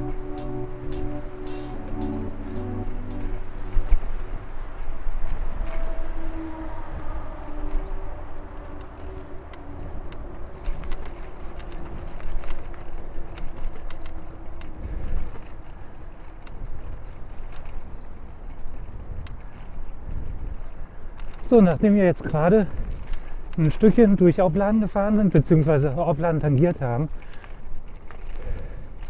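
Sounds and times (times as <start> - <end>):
music: 0.0 - 4.4
wind and tyre rumble: 0.0 - 29.0
bike rattles and clicks: 3.2 - 29.0.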